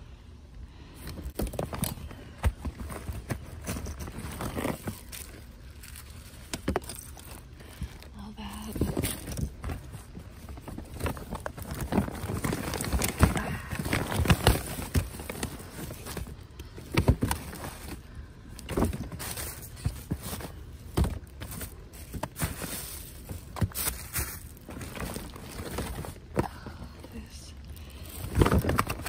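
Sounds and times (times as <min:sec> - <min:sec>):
paper and plastic rustling: 0:01.0 - 0:29.0
clicks and knocks of items: 0:28.0 - 0:29.0.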